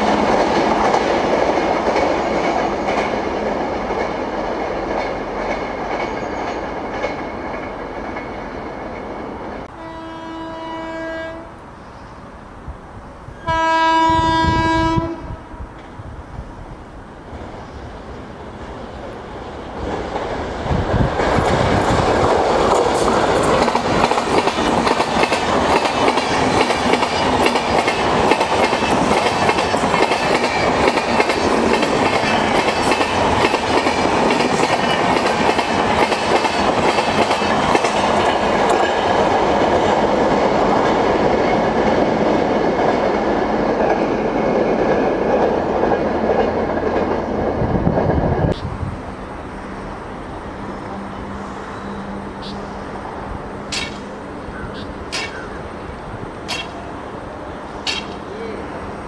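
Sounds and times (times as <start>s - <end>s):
train wheels clattering: 0.0s - 9.2s, 19.7s - 47.4s, 53.6s - 54.2s, 55.0s - 55.5s, 56.4s - 56.9s, 57.8s - 58.3s.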